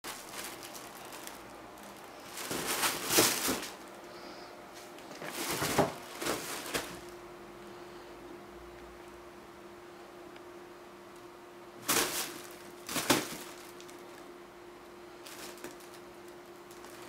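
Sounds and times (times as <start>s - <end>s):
cats rustling in fabric tunnel: 0.0s - 4.0s, 4.8s - 7.2s, 11.8s - 14.2s, 15.2s - 17.0s.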